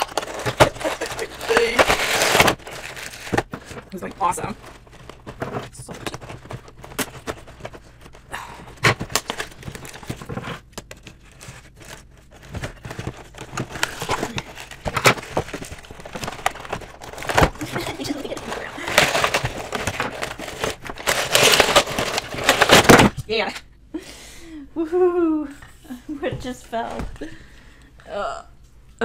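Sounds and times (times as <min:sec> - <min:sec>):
plastic packaging snapping and cracking: 0:00.0 - 0:03.9, 0:08.8 - 0:11.2, 0:11.8 - 0:23.2
scissors cutting plastic: 0:00.0 - 0:04.0.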